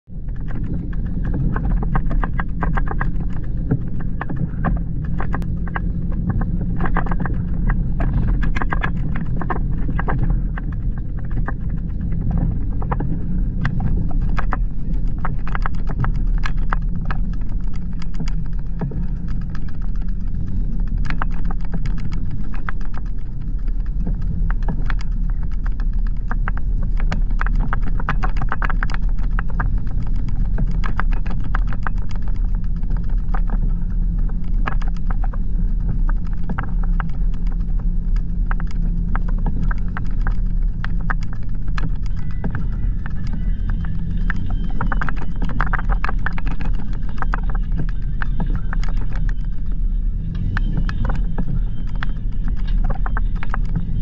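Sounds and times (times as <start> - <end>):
low engine rumble: 0.0 - 54.0
tyres clicking and knocking on rocks: 0.1 - 54.0.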